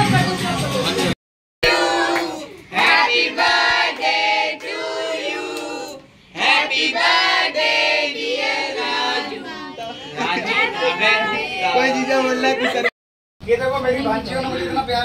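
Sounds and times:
people singing together: 1.6s - 12.4s.

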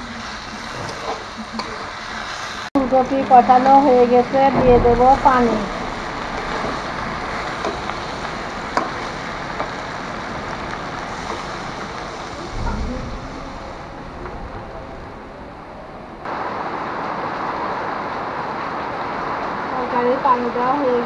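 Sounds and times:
vegetables sizzling in hot oil: 0.0s - 4.4s, 5.1s - 12.5s
even hiss: 0.0s - 16.4s.

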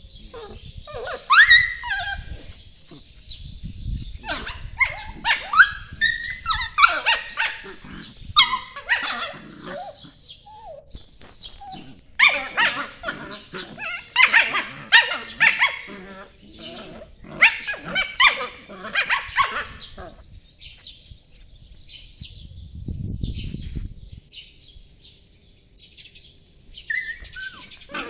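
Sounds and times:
puppies yelping and yapping: 0.3s - 3.1s, 4.1s - 20.2s, 26.8s - 28.0s.

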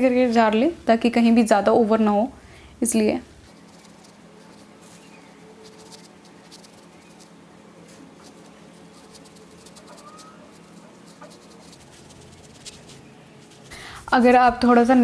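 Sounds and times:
makeup brush dabbing powder: 2.9s - 14.6s.

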